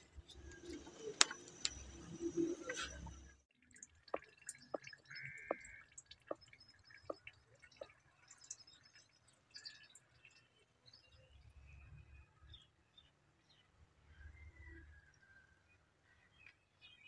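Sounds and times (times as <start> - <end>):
small birds chirping: 4.1 - 13.6.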